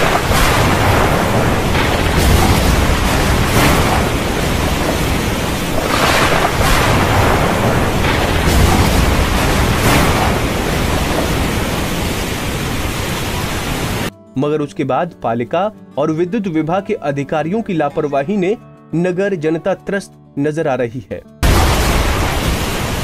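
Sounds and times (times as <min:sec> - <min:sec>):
water rushing: 0:00.0 - 0:14.1, 0:21.4 - 0:23.0.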